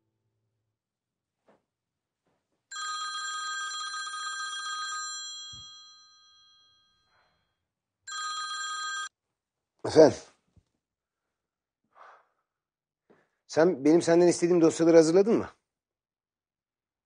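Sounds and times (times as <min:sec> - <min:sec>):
mobile phone ringing: 0:02.7 - 0:07.2, 0:08.1 - 0:09.2.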